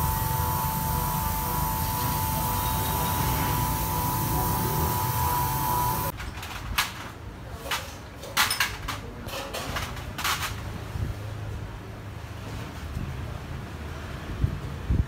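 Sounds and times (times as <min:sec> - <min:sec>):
faint whine: 0:00.0 - 0:06.1
steady background noise: 0:00.0 - 0:15.0.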